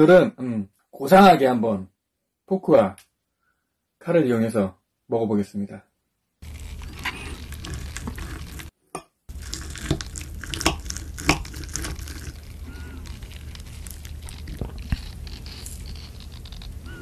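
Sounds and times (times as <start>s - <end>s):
wet squishing of cutting meat: 6.4s - 8.7s, 9.3s - 16.5s.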